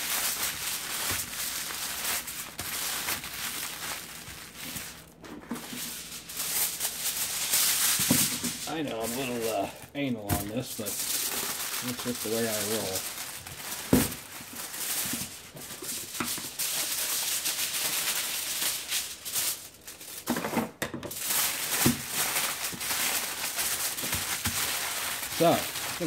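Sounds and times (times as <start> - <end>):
aluminum foil crinkling: 0.0 - 26.0.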